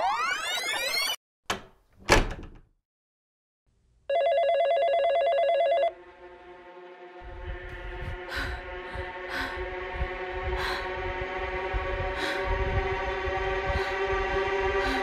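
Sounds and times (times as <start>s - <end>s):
warbling telephone ring: 4.1s - 5.9s.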